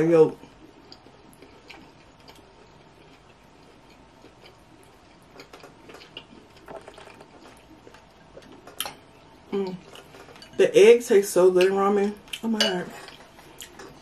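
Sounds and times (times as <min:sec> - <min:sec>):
chewing: 0:00.5 - 0:10.5, 0:12.2 - 0:14.0
person humming: 0:09.5 - 0:09.8.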